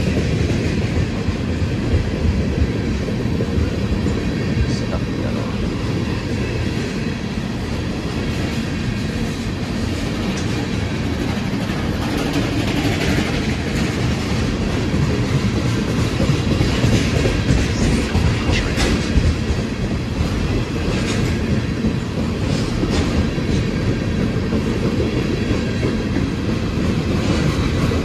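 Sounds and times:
train wheels rumbling on rails: 0.0 - 28.0
wheel clacks over rail joints: 10.0 - 28.0.

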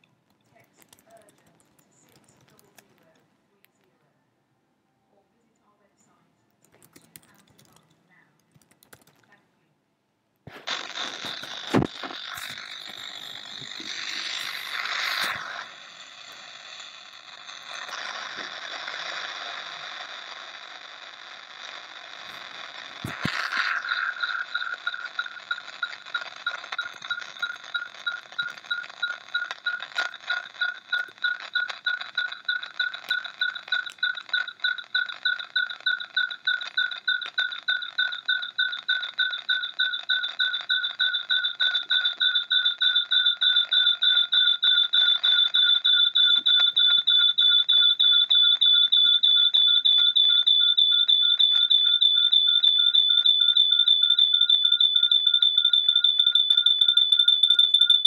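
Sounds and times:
rapid electronic beeping: 10.7 - 15.7, 22.3 - 58.0.

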